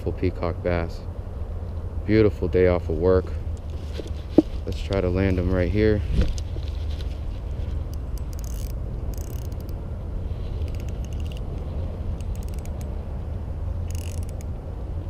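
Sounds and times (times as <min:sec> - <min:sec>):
spinning reel ratcheting clicks: 0:07.9 - 0:09.7, 0:10.6 - 0:11.4, 0:12.2 - 0:12.9, 0:13.8 - 0:14.5.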